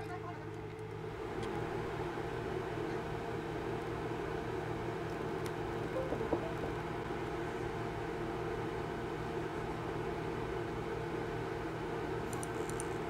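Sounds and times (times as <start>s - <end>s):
background hum and hiss: 0.0s - 13.0s
short knock: 6.0s - 6.7s.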